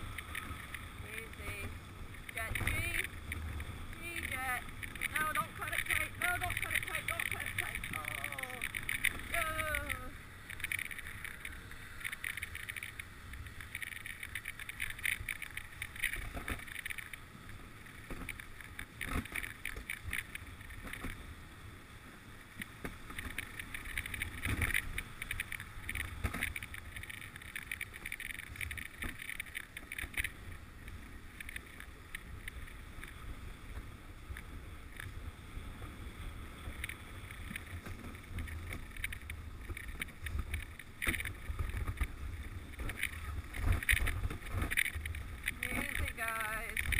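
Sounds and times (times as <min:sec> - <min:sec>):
sled runners scraping on snow: 0:00.0 - 0:21.2
wind rumble on microphone: 0:22.5 - 0:46.9.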